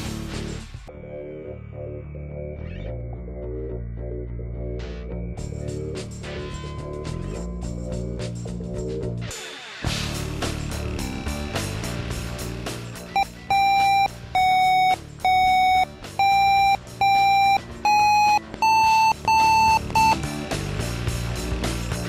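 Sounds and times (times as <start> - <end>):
background music: 0.0 - 22.0
electronic beeps rising in pitch: 13.2 - 20.2.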